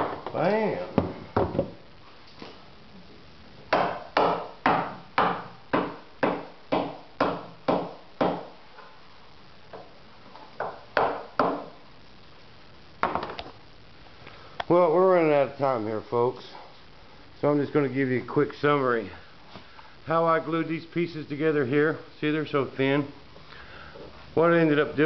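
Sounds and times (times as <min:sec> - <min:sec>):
tool knocking on fiberglass mold: 0:03.7 - 0:08.5.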